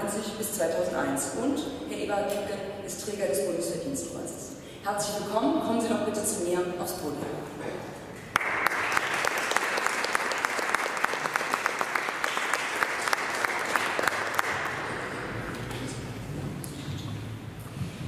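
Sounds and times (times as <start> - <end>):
audience applauding: 8.3 - 15.9.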